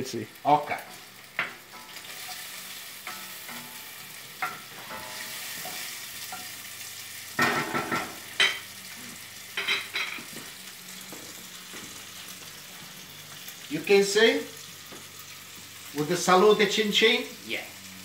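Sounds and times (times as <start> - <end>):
bacon sizzling in a frying pan: 0.0 - 18.0
wooden spoon knocking a pan: 7.4 - 8.6.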